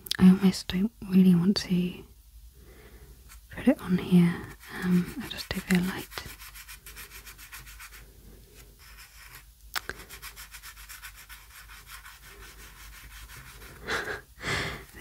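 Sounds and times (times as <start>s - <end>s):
pastel scratching on paper: 4.4s - 8.1s, 8.8s - 14.2s.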